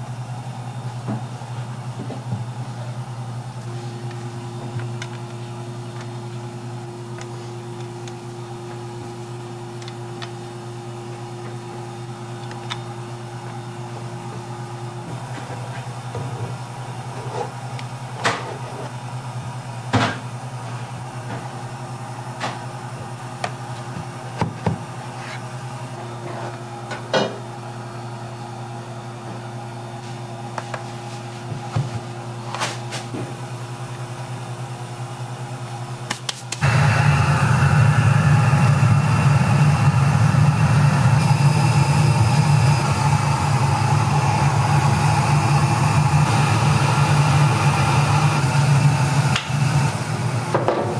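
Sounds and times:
kitchen hum: 0:00.0 - 0:50.9
steamer rushing noise: 0:36.6 - 0:50.9.

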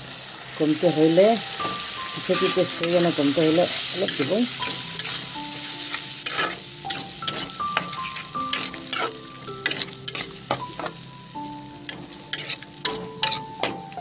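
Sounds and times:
fish frying in oil: 0:00.0 - 0:14.0
utensil scraping and knocking pan: 0:06.2 - 0:11.0, 0:11.9 - 0:13.9.

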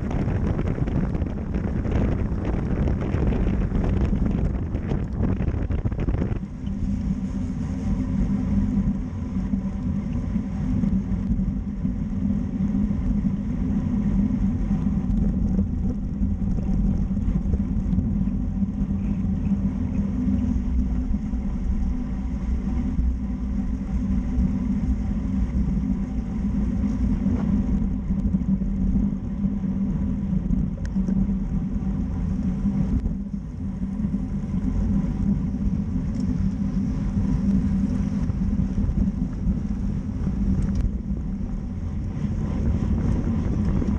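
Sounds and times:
bicycle tyre rumble on road: 0:00.0 - 0:43.9
wind rush: 0:00.0 - 0:43.9.

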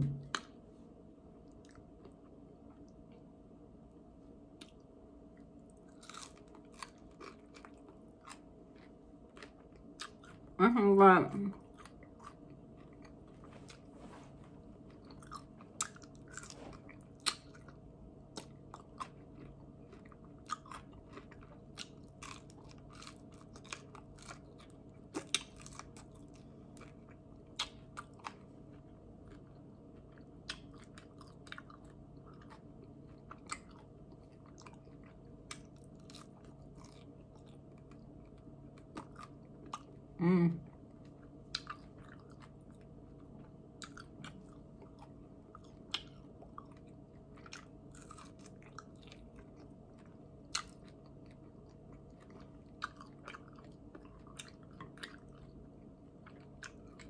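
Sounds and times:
chewing and biting: 0:04.6 - 0:10.6, 0:11.6 - 0:13.9, 0:14.6 - 0:57.0
person humming: 0:40.2 - 0:40.6.

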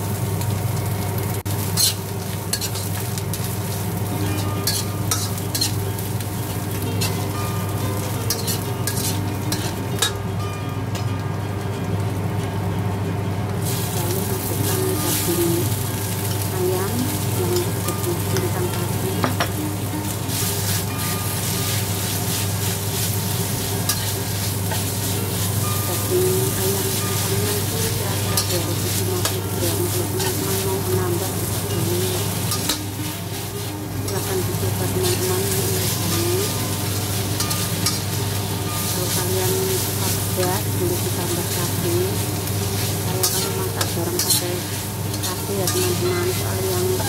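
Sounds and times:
food sizzling: 0:00.0 - 0:47.0
spatula scraping wok: 0:01.4 - 0:10.2, 0:13.6 - 0:47.0.

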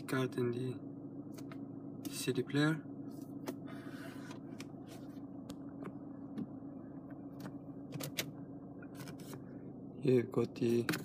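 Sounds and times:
car engine hum inside cabin: 0:00.0 - 0:11.0
phone handling clicks and rubs: 0:07.4 - 0:09.4.

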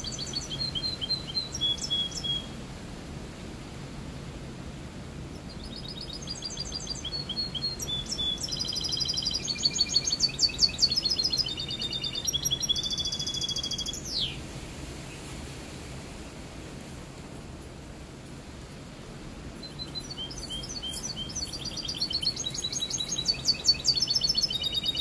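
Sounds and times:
bird singing trills and chirps: 0:00.0 - 0:02.5, 0:05.4 - 0:14.4, 0:19.6 - 0:25.0.

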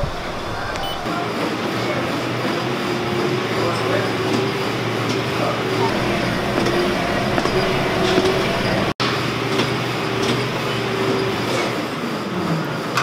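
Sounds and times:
stair-climber machine rumbling: 0:05.8 - 0:11.3
climbing footfalls: 0:05.9 - 0:09.0.

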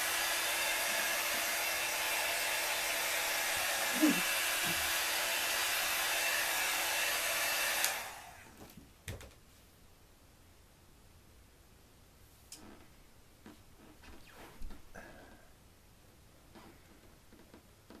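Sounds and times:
heat gun airflow rushing: 0:00.0 - 0:08.5.

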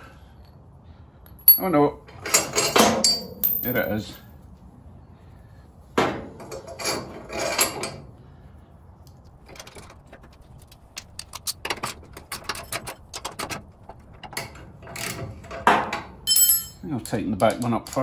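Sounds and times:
metal clinks and rattles of bolt: 0:01.3 - 0:04.2, 0:06.3 - 0:08.0, 0:09.3 - 0:18.0.

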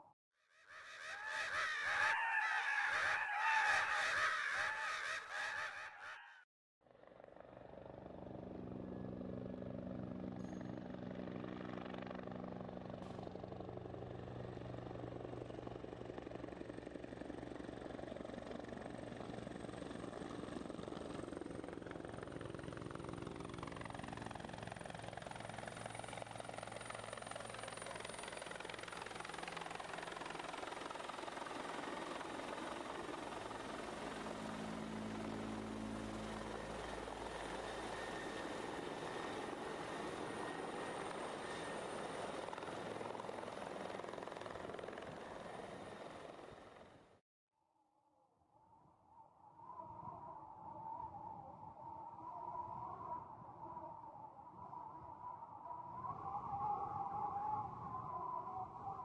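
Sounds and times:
flock of birds calling: 0:00.7 - 0:06.4
helicopter rotor and engine drone: 0:00.7 - 0:47.2, 0:50.0 - 0:59.0.

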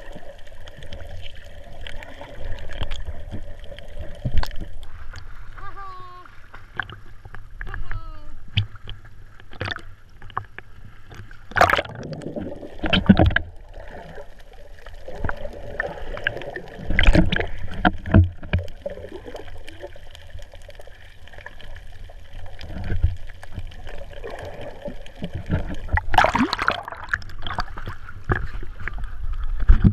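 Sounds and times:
muffled underwater sound: 0:00.0 - 0:08.9
seawater sloshing and splashing: 0:08.4 - 0:29.9.

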